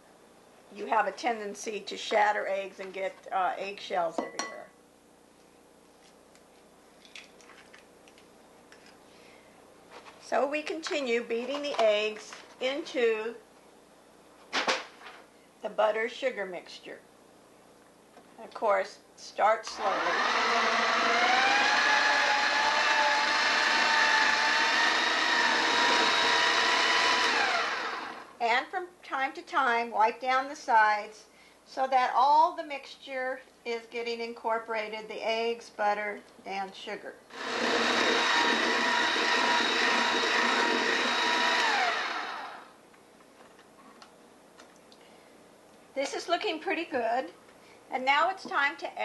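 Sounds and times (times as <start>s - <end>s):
electric mixer motor whine: 19.7s - 28.3s, 37.3s - 42.7s.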